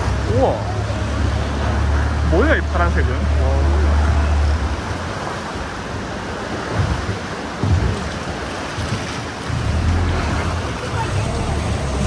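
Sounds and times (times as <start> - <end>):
boat motor running: 0.0 - 12.0
water slapping boat hull: 0.0 - 12.0.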